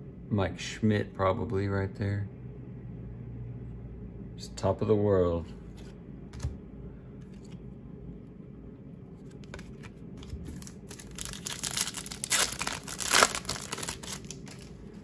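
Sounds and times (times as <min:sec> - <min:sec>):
foil wrapper tearing and crinkling: 0:09.6 - 0:14.8.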